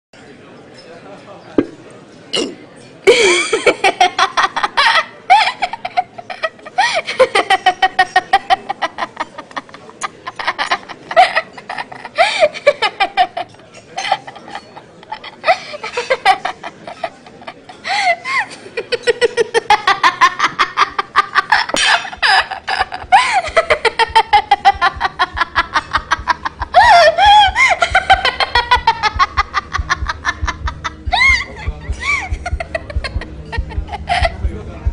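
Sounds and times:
girl laughing hard: 21.6 - 34.5.

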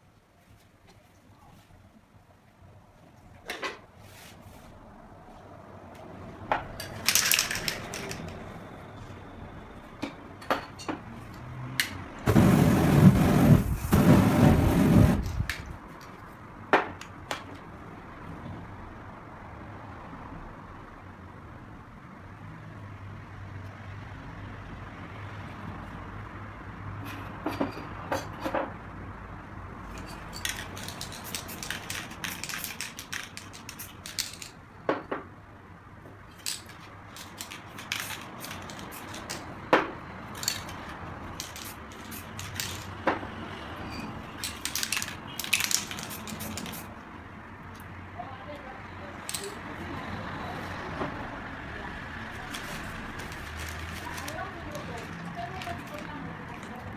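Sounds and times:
spray paint can hissing: 12.2 - 15.6, 30.4 - 34.5, 36.5 - 39.5, 40.3 - 43.0, 44.4 - 47.0.

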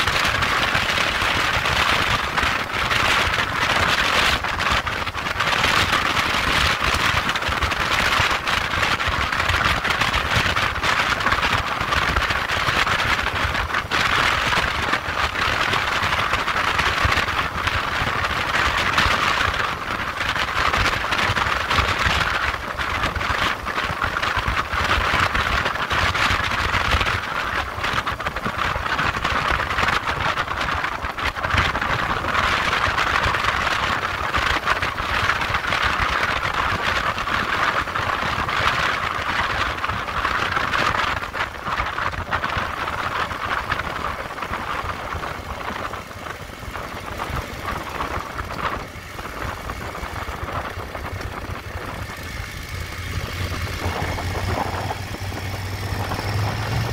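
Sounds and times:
motorcycle engine rumble: 0.0 - 56.9
wind and road noise: 0.0 - 56.9.

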